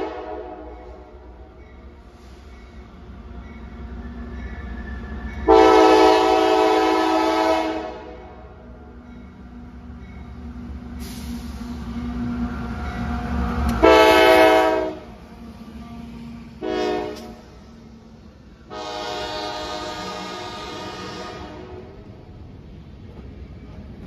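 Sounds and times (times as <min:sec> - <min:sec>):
train air horn blasts: 0:00.0 - 0:01.3, 0:05.4 - 0:08.4, 0:13.8 - 0:15.2, 0:16.6 - 0:17.6, 0:18.6 - 0:22.0
diesel locomotive engine rumble: 0:00.0 - 0:24.0
freight cars rolling on rails: 0:00.0 - 0:24.0.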